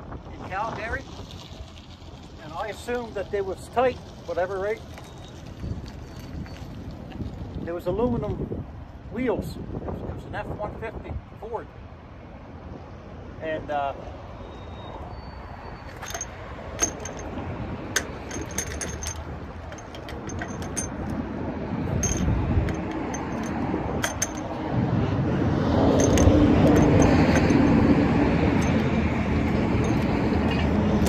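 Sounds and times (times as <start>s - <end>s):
passing vehicles: 0.0s - 31.0s
wrench clinking on lug nuts: 15.9s - 21.2s, 21.8s - 24.6s, 25.9s - 30.2s.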